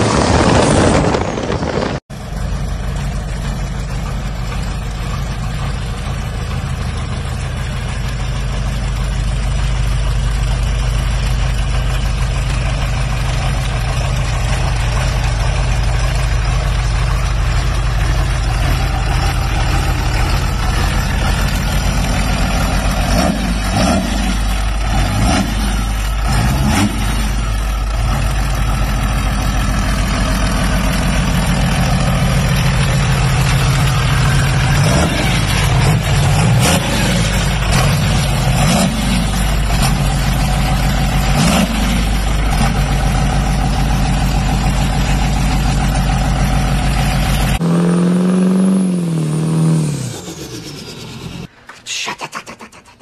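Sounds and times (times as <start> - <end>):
loud boat engine: 0.0 - 2.0, 12.9 - 52.9
diesel engine idling: 0.1 - 52.4.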